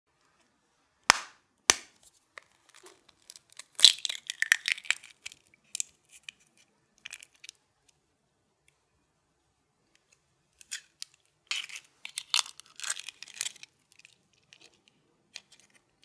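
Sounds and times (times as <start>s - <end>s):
eggshell cracking open: 1.1s - 7.6s, 10.6s - 14.8s.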